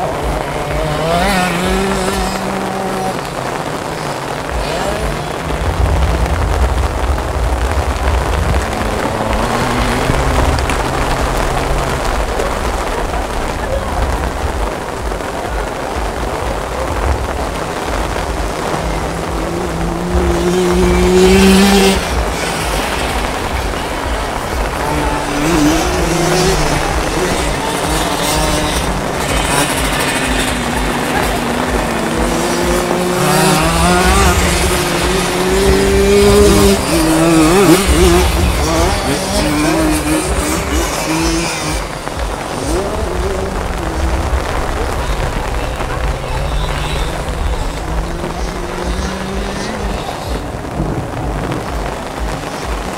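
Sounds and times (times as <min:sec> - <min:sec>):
moped engine approaching: 0:00.0 - 0:52.9
wind buffeting the microphone: 0:04.4 - 0:39.2.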